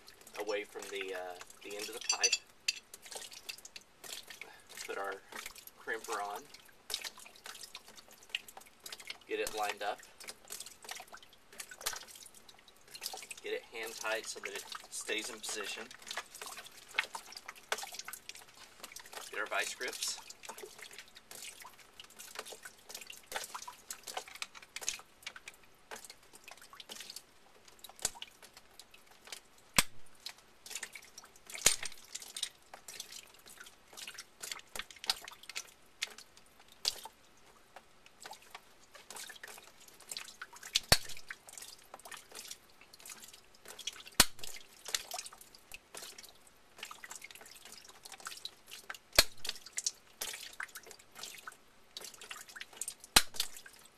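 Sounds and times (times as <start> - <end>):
water dripping: 0.0 - 53.9
hand tools clicking and tapping: 1.8 - 2.8.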